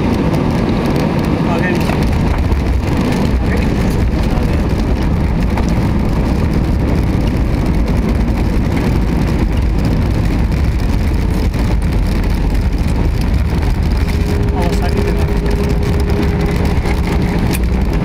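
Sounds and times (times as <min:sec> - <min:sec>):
airliner cabin rumble on landing roll: 0:00.0 - 0:18.0.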